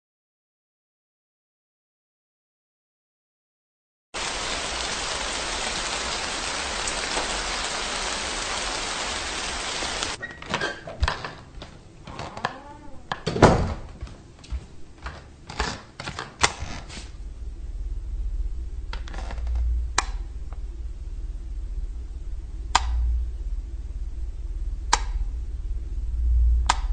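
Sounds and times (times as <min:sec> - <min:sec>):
steady hiss: 0:04.2 - 0:10.2
footsteps in a hallway: 0:13.5 - 0:15.8.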